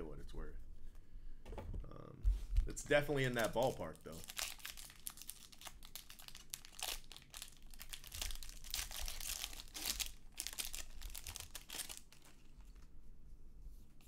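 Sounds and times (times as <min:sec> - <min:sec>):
foil wrapper tearing and crinkling: 0:03.2 - 0:12.8.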